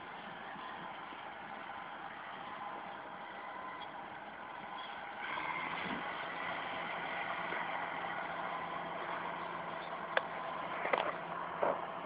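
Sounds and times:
distant bulldozer diesel engine: 0.0 - 12.0.

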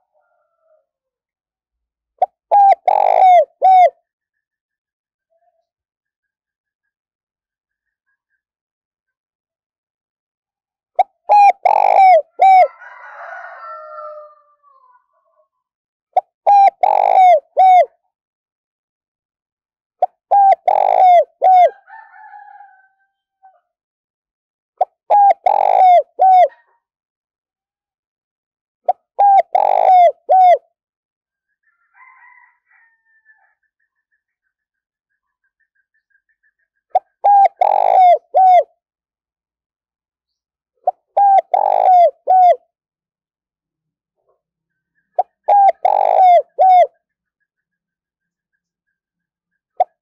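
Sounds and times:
dove cooing: 2.2 - 4.0, 11.3 - 12.8, 16.4 - 18.0, 20.0 - 21.8, 25.1 - 26.6, 28.9 - 30.6, 37.0 - 38.7, 40.8 - 42.6, 45.2 - 47.0.

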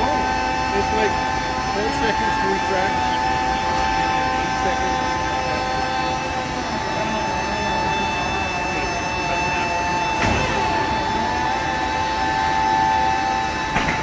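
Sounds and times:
hydraulic system whine: 0.0 - 14.0.

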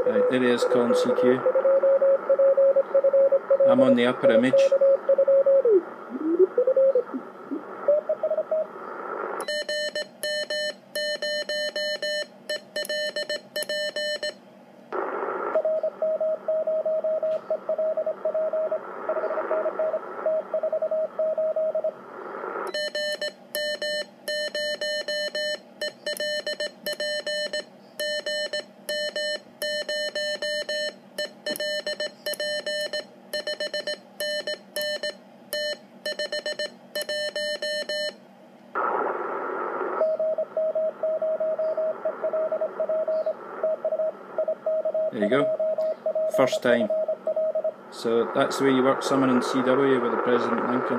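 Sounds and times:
receiver hiss: 3.4 - 9.4, 14.9 - 15.7, 17.2 - 20.5, 21.8 - 22.7, 38.7 - 41.0, 41.6 - 47.0, 47.8 - 50.9.

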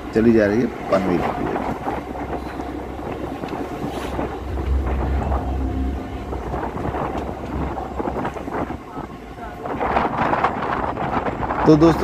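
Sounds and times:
electric train rumbling: 0.0 - 11.6
wind buffeting microphone: 0.7 - 12.0.

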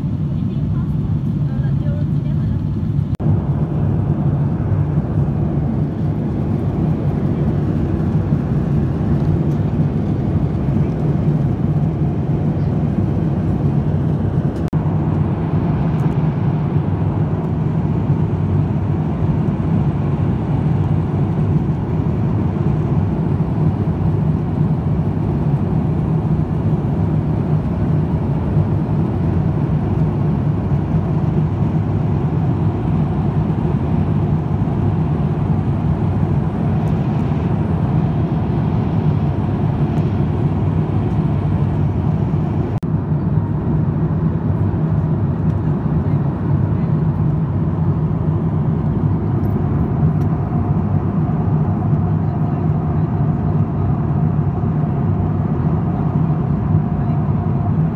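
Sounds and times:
airliner cabin noise: 0.0 - 57.9.

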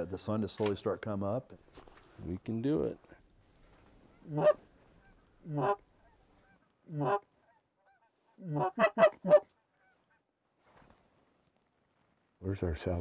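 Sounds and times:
geese honking: 4.0 - 10.3.

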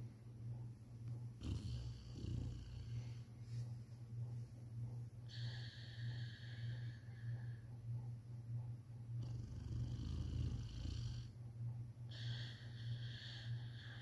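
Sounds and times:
dog snoring: 1.4 - 3.2, 5.2 - 7.6, 9.2 - 11.4, 12.1 - 14.0.

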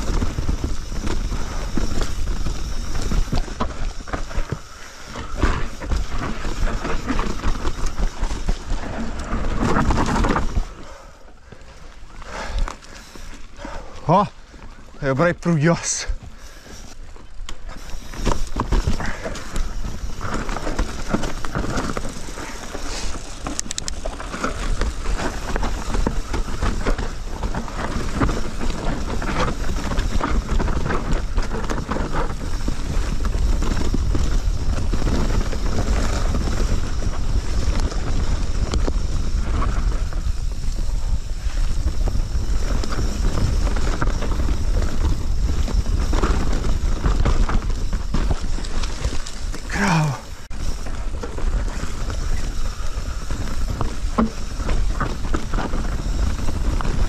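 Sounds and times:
wind rumbling on microphone: 0.0 - 11.3, 16.1 - 57.0
bike tyres on dirt trail: 0.0 - 57.0
bike parts rattling: 15.8 - 57.0.

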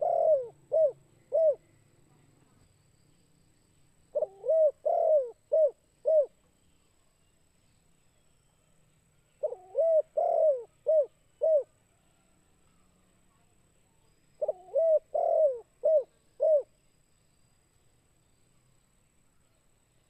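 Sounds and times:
dove cooing: 0.0 - 1.7, 4.1 - 6.4, 9.4 - 11.7, 14.4 - 16.7.

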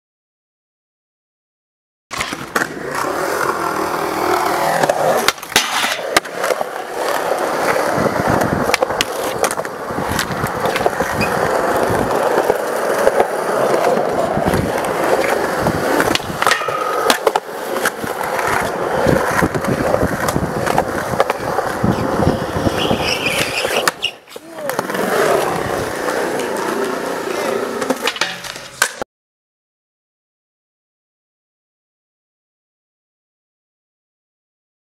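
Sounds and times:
skateboard clacks and knocks: 2.1 - 29.0
skateboard wheels rolling on concrete: 2.1 - 29.1.

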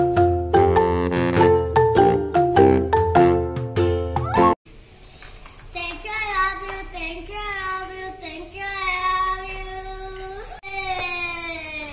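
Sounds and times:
child singing wordless tune: 5.8 - 11.9.

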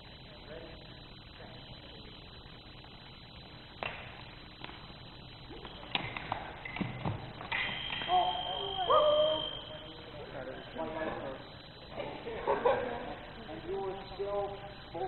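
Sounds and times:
voices shouting: 8.0 - 10.2.

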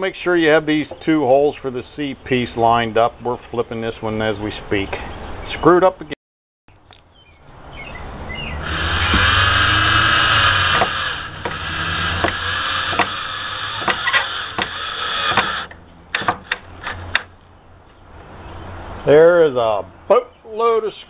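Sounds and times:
cordless drill motor whining: 8.6 - 15.8
drill clutch clicking: 8.6 - 16.6.

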